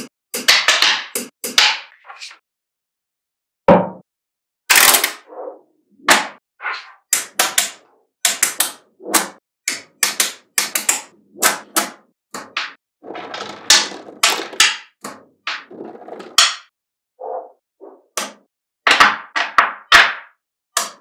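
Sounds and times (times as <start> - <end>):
magnetic balls clacking together: 9.7 - 16.7.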